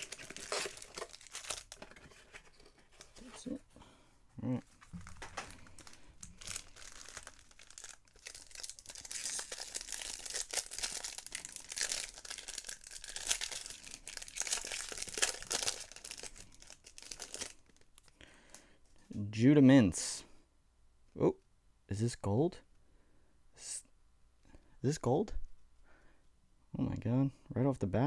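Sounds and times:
foil wrapper tearing and crinkling: 0:00.0 - 0:02.1, 0:04.9 - 0:17.9.

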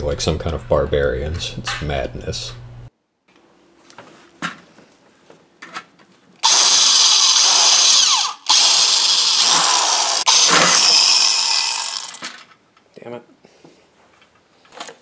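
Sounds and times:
electric drill boring metal: 0:06.4 - 0:12.4.

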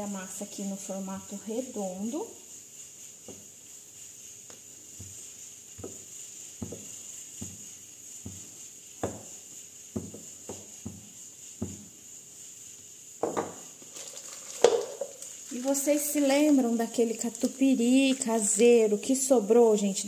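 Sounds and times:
rolling pin rolling dough: 0:00.3 - 0:20.0
soft rolling pin knocks: 0:03.2 - 0:03.5, 0:04.5 - 0:12.0, 0:13.2 - 0:13.7.

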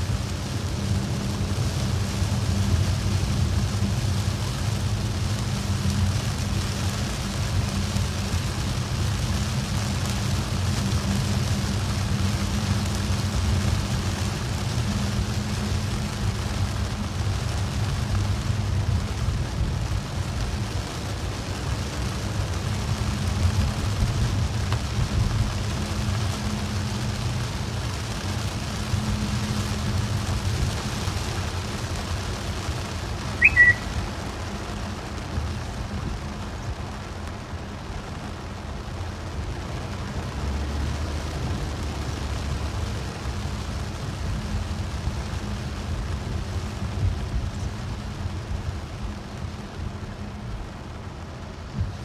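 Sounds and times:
engine and road rumble: 0:00.0 - 0:52.0
tyres hissing on wet road: 0:00.0 - 0:52.0
high-pitched chirp: 0:33.4 - 0:33.9.

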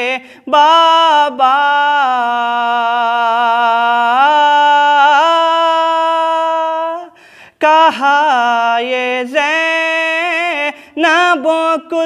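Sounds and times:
man singing unaccompanied lament: 0:00.0 - 0:12.0
quick breath: 0:07.1 - 0:07.6, 0:10.7 - 0:11.0.

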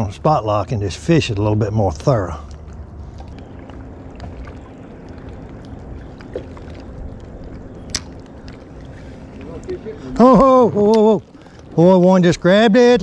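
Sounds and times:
water wash: 0:00.0 - 0:13.0.

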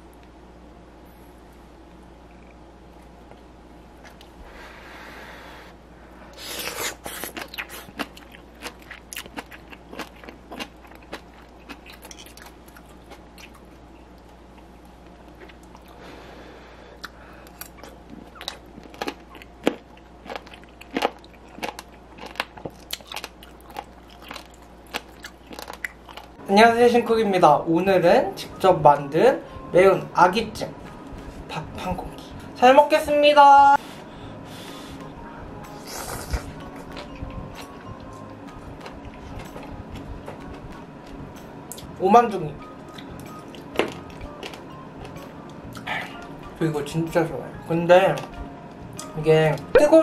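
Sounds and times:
sticky food clicks and crackles: 0:17.0 - 0:26.4.

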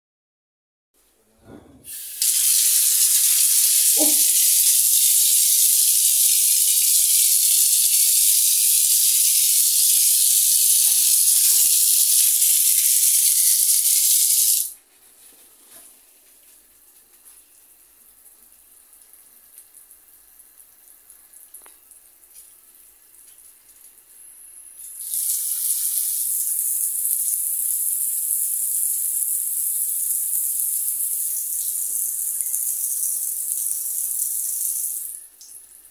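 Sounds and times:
water gushing from a spout: 0:01.9 - 0:14.7, 0:25.0 - 0:35.1
water spraying from shower head: 0:01.9 - 0:14.8, 0:24.9 - 0:27.0.

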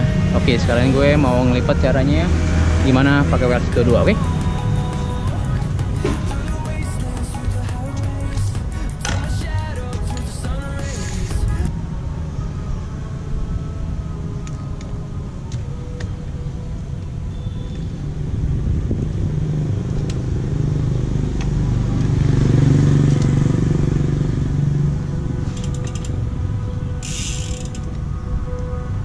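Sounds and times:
passing vehicle rumble: 0:00.0 - 0:29.0
bike frame clicks and knocks: 0:25.4 - 0:26.2, 0:27.0 - 0:28.0.

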